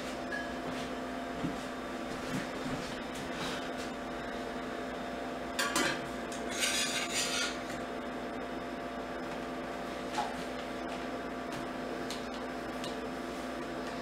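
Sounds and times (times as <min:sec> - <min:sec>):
steady hum: 0:00.0 - 0:14.0
metal rod scraping metal plate: 0:06.5 - 0:07.6.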